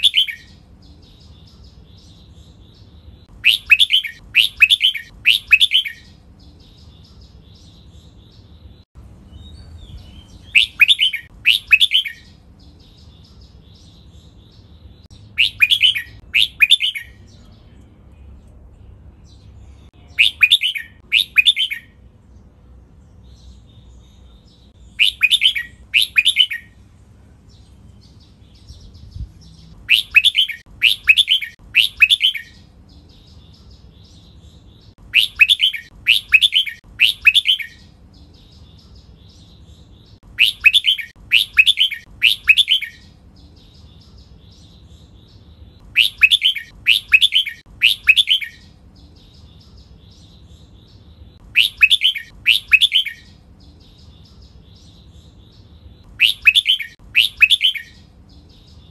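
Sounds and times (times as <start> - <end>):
bird whistled song: 0.0 - 8.4, 9.3 - 17.3, 20.0 - 22.0, 24.7 - 26.8, 28.0 - 58.9
faint bird chirps: 0.0 - 22.0, 23.0 - 26.8, 27.4 - 58.9.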